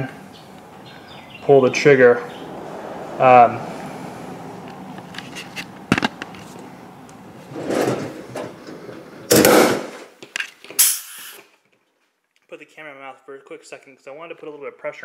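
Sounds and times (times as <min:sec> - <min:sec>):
rushing rubbing noises: 0:02.4 - 0:10.1.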